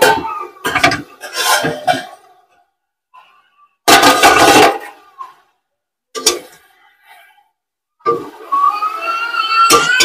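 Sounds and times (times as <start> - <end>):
metal lid and ladle clattering: 0.0 - 2.3, 3.9 - 5.0.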